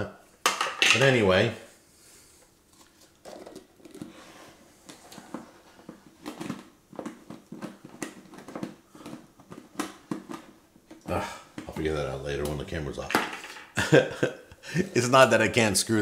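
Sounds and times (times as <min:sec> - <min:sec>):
plastic lid clicking and scraping: 0:04.8 - 0:11.0.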